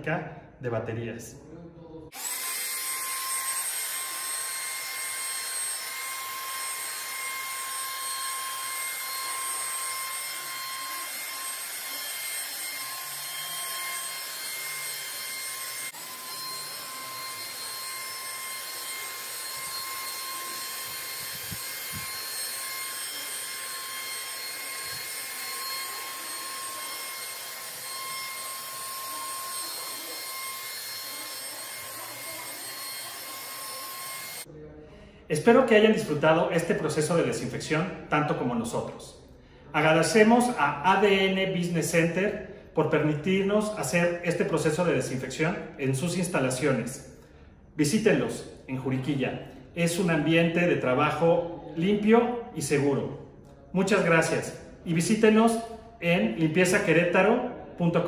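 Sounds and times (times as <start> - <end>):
sprayer high-pitched whine: 2.2 - 34.5.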